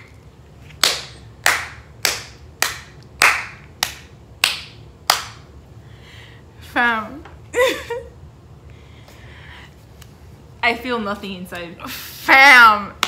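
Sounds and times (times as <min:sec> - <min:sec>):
hands clapping: 0:00.8 - 0:05.4.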